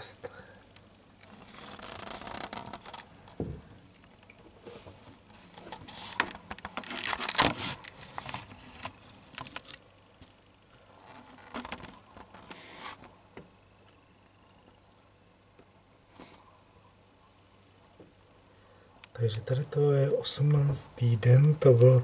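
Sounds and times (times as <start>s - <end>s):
handling clicks and rustles: 1.2s - 13.2s.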